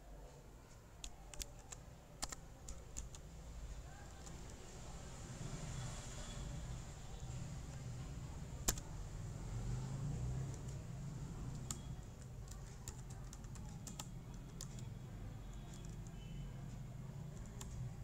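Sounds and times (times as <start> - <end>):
keyboard keystrokes: 1.0 - 3.2, 8.6 - 8.9, 11.5 - 14.9, 15.5 - 16.2.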